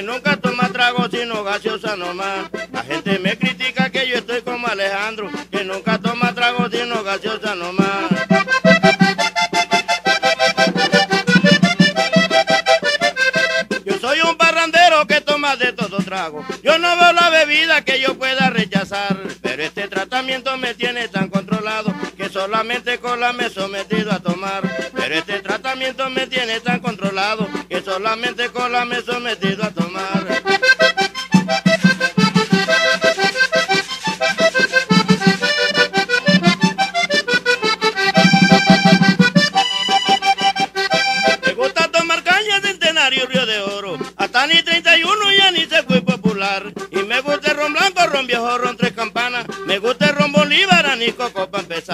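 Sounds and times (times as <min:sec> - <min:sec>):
accordion playing fast: 0:00.0 - 0:51.9
percussion beat: 0:00.0 - 0:51.9
steady low beat: 0:07.9 - 0:13.8.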